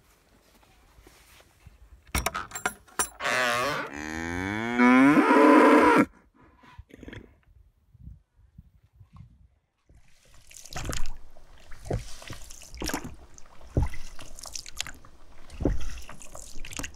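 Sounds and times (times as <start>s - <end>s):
cow mooing: 3.2s - 6.1s.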